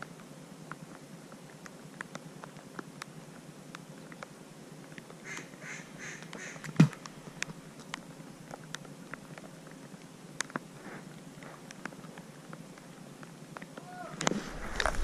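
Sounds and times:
faint ticks: 0.0 - 5.5
duck quacks: 5.2 - 6.6.

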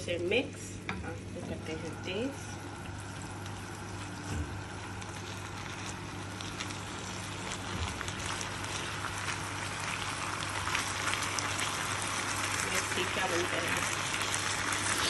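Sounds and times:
low hum: 0.1 - 10.9
chicken sizzling in a frying pan: 1.8 - 15.0.

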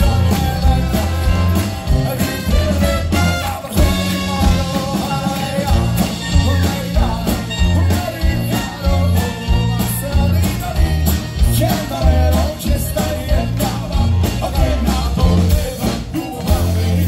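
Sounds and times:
trumpet: 0.0 - 12.8
accordion: 0.0 - 17.0
live band playing upbeat song: 0.0 - 17.0.

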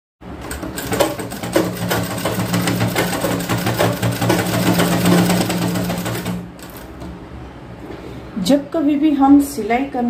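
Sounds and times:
sewing machine humming: 0.3 - 7.0
sewing machine knocking: 0.3 - 7.2.

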